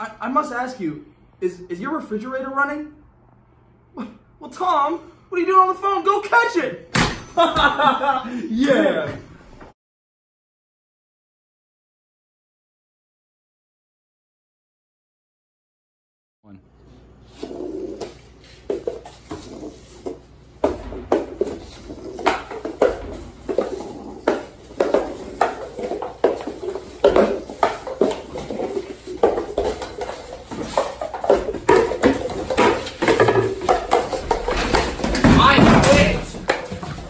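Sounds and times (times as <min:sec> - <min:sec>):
cups knocking on countertop: 0:18.7 - 0:37.0.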